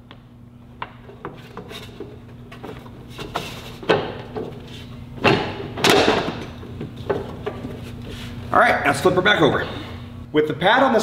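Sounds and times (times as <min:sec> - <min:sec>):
scraping knocks: 0:01.1 - 0:08.2.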